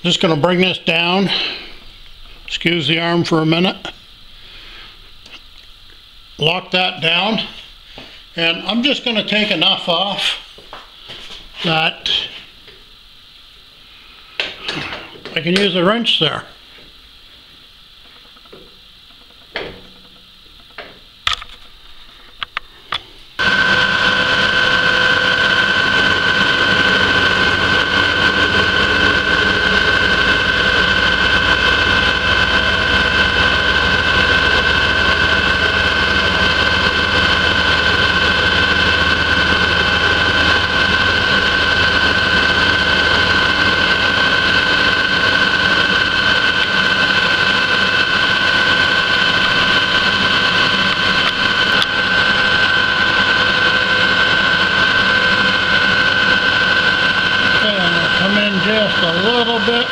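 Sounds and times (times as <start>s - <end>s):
milling machine whine: 16.7s - 59.9s.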